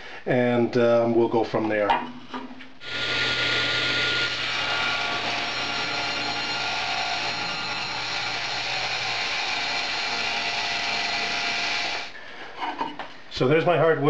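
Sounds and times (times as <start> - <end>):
table saw cutting wood: 2.8 - 12.1.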